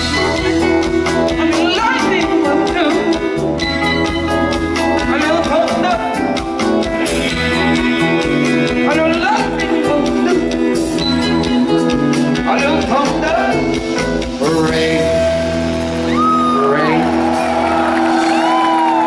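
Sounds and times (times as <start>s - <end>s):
bass guitar: 0.0s - 19.0s
drum kit: 0.0s - 19.0s
electric guitar: 0.0s - 19.0s
person singing: 7.5s - 13.8s.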